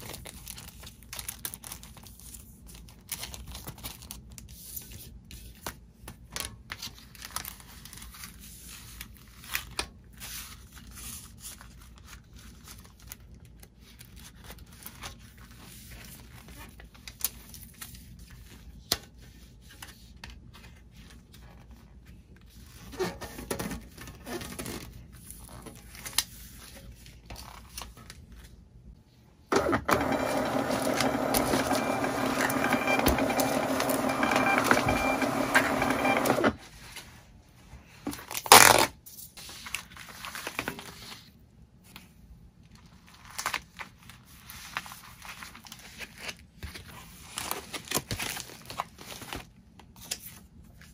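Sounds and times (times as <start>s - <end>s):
packaging rustling: 0.0s - 4.4s, 42.8s - 50.3s
label printer running: 29.5s - 36.6s.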